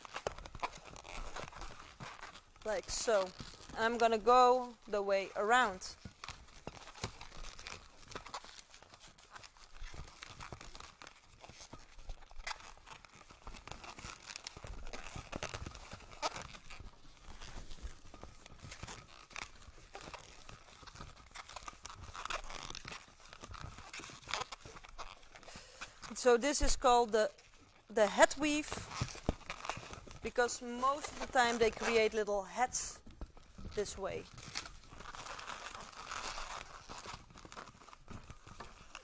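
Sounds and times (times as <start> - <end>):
balloons squeaking and rubbing: 0.0 - 39.0.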